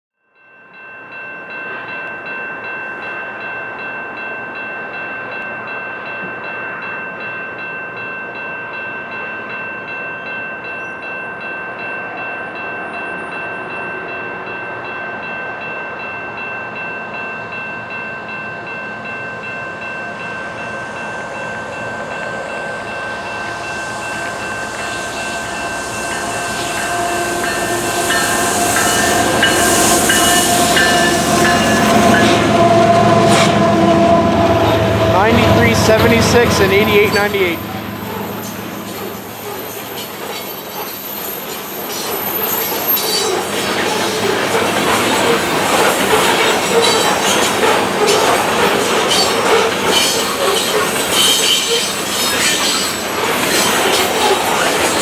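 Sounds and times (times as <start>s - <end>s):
warning bell ringing: 0.4s - 53.0s
freight train rumble: 11.4s - 55.0s.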